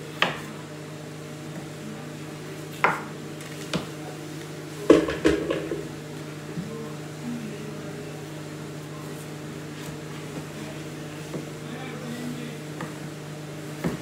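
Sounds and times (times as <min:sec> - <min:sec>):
knife chopping on wooden board: 0:00.2 - 0:00.5, 0:02.8 - 0:03.1, 0:13.8 - 0:14.0.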